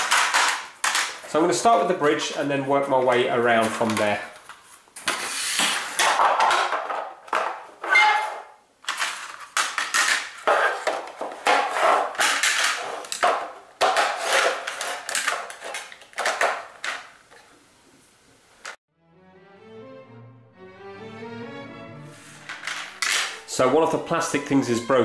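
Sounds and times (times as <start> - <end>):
toy track parts clattering: 0.0 - 1.9, 5.1 - 17.2, 22.4 - 23.5.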